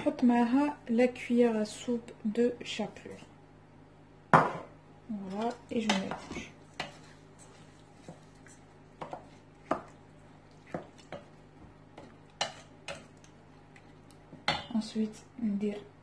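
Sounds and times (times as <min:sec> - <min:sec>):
wooden spoon stirring mixture: 0:05.1 - 0:15.3.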